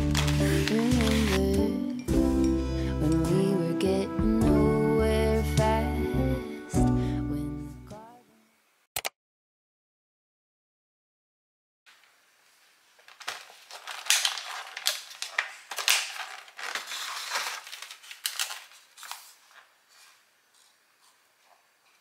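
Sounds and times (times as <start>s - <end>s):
plastic packaging crackling: 0.0s - 1.6s, 12.9s - 19.8s.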